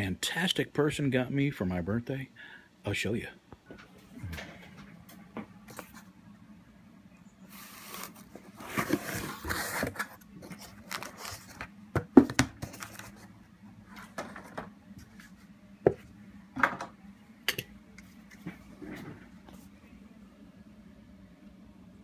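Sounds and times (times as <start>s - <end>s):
cardboard and paper rustling: 7.5s - 13.3s.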